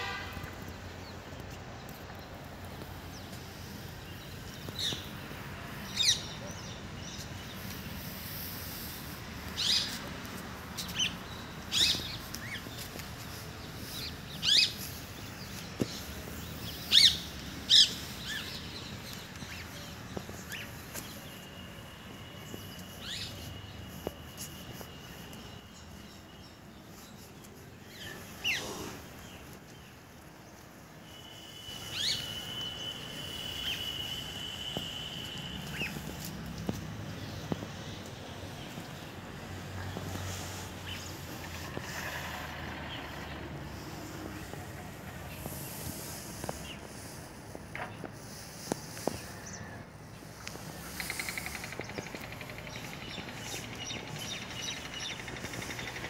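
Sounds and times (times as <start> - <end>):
birds chirping: 0.0 - 42.0.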